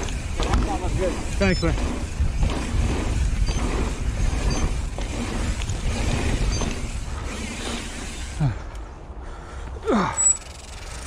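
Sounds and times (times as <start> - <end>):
bike knocks and rattles: 0.0 - 8.4
wind on microphone: 0.0 - 8.4
bike tires rumbling on dirt: 0.0 - 11.0.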